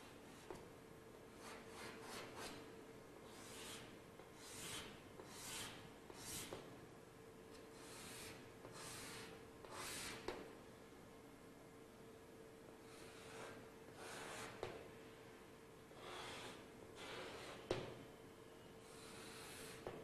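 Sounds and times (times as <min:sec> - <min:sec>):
chalk scraping on blackboard: 0:01.4 - 0:02.6, 0:03.3 - 0:06.6, 0:07.8 - 0:10.3, 0:12.9 - 0:14.7, 0:16.0 - 0:17.7, 0:18.8 - 0:19.9.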